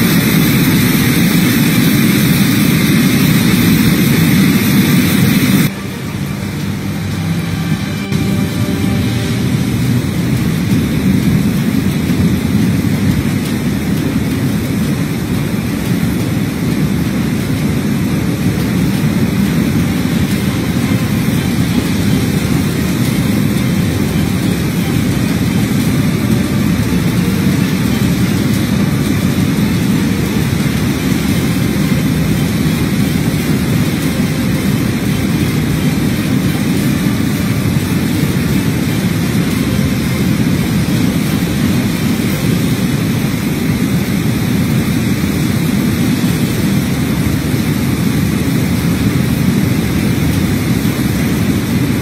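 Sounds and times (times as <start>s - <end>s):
pouring rain: 0.0s - 52.0s
wind: 0.0s - 52.0s.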